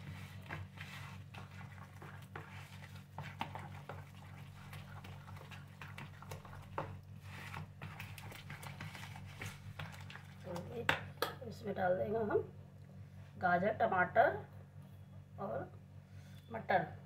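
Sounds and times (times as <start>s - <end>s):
spoon stirring thick batter: 0.0s - 11.3s
steady low hum: 0.0s - 17.0s.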